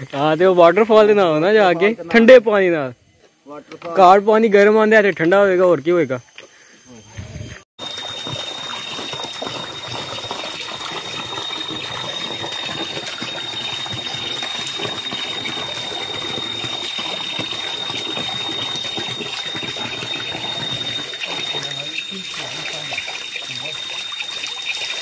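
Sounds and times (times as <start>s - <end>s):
water gushing onto rocks: 7.8s - 25.0s.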